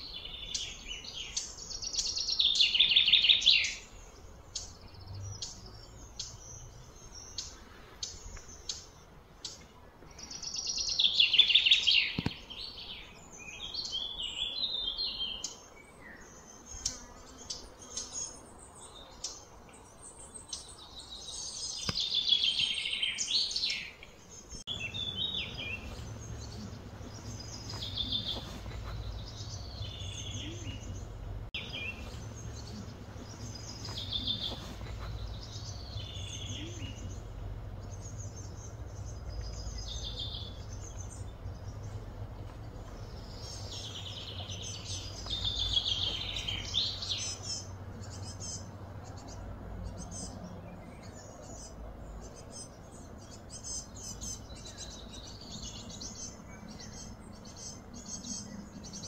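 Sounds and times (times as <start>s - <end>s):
birds calling: 0.0s - 59.0s
low background rumble: 24.3s - 59.0s.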